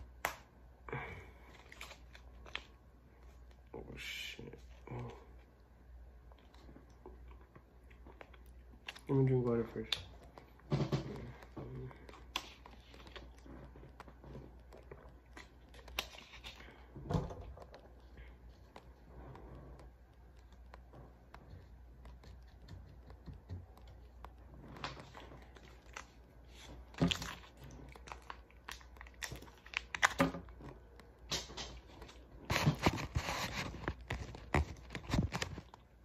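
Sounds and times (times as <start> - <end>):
plastic packaging crinkling: 8.1 - 19.0, 24.0 - 36.0.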